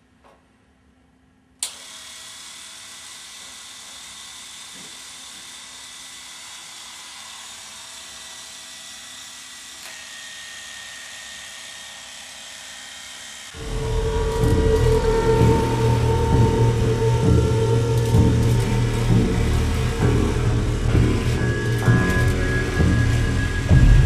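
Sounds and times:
electric beard trimmer buzzing: 0:01.7 - 0:15.4.

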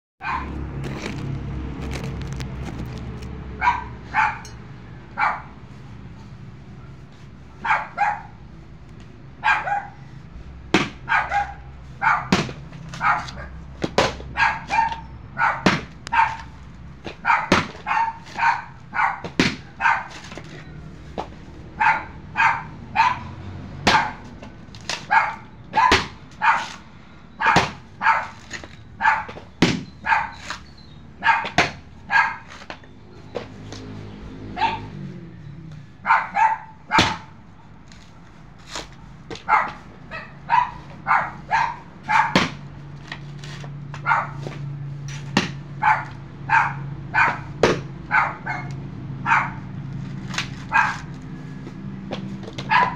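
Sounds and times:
dog barking: 0:00.2 - 0:00.6, 0:03.6 - 0:05.6, 0:07.6 - 0:08.4, 0:09.4 - 0:10.0, 0:11.0 - 0:13.6, 0:14.3 - 0:16.5, 0:17.2 - 0:20.2, 0:21.7 - 0:24.3, 0:25.0 - 0:26.8, 0:27.4 - 0:28.4, 0:29.0 - 0:29.4, 0:30.0 - 0:30.5, 0:31.2 - 0:32.5, 0:34.5 - 0:35.0, 0:36.0 - 0:37.4, 0:39.4 - 0:42.4, 0:44.0 - 0:44.5, 0:45.8 - 0:49.7, 0:50.6 - 0:51.1, 0:52.6 - 0:52.9
machete striking coconuts: 0:10.7 - 0:11.1, 0:12.3 - 0:15.0, 0:15.6 - 0:18.6, 0:19.2 - 0:21.5, 0:23.8 - 0:26.8, 0:27.5 - 0:30.7, 0:31.4 - 0:33.9, 0:36.9 - 0:37.4, 0:38.6 - 0:39.5, 0:42.2 - 0:45.7, 0:47.3 - 0:48.0, 0:50.1 - 0:51.2.

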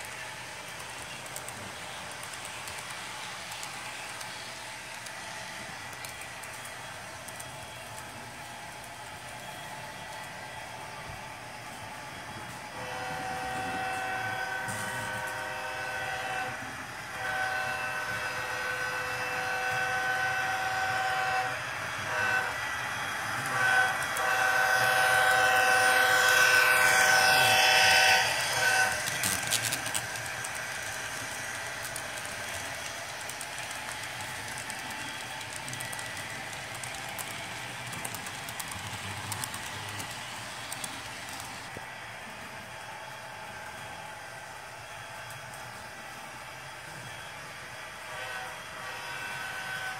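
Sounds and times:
model train wheels clattering: 0:00.0 - 0:10.3, 0:23.3 - 0:41.8
model train air horn: 0:12.5 - 0:31.6, 0:47.8 - 0:49.9.

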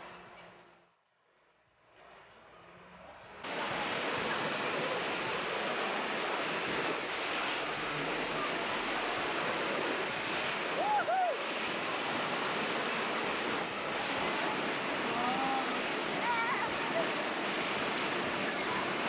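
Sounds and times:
white water rushing: 0:03.4 - 0:19.0.

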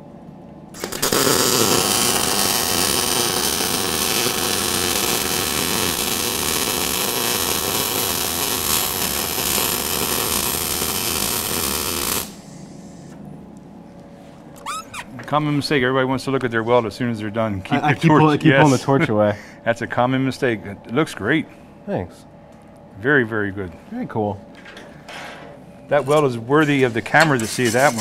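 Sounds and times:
welder arc buzzing: 0:00.7 - 0:13.2, 0:25.5 - 0:28.0.

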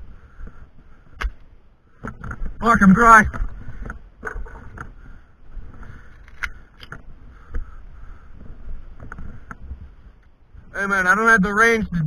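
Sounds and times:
wind on microphone: 0:03.2 - 0:12.0.

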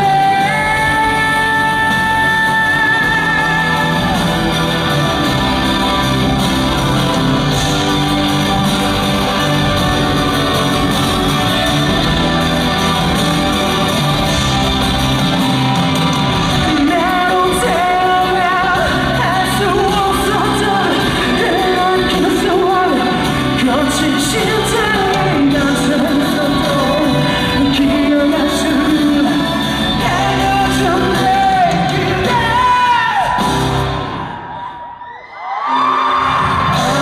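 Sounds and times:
man singing: 0:00.0 - 0:07.8, 0:16.4 - 0:33.7, 0:36.6 - 0:37.0
live band music: 0:00.0 - 0:34.7, 0:35.9 - 0:37.0.

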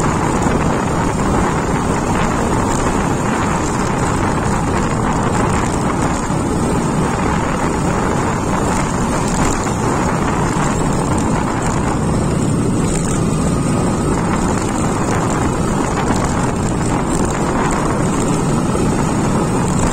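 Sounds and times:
motorcycle engine running: 0:00.0 - 0:19.9
wind noise on microphone: 0:00.0 - 0:19.9.

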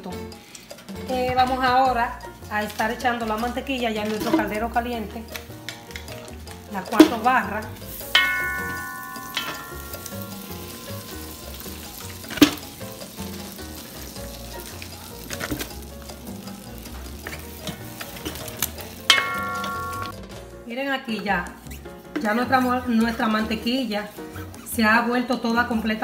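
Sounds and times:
butter sizzling in a pot: 0:00.3 - 0:20.3.

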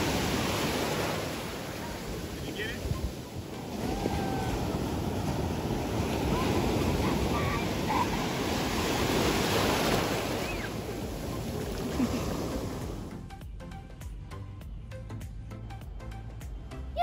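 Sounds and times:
ocean waves breaking: 0:00.0 - 0:13.1
surf washing through shallows: 0:00.0 - 0:13.1.

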